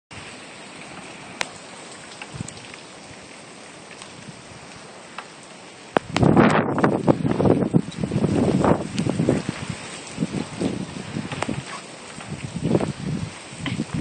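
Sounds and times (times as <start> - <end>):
rain shower hiss: 0.1 - 14.0
wind buffeting microphone: 2.2 - 3.3, 6.0 - 14.0.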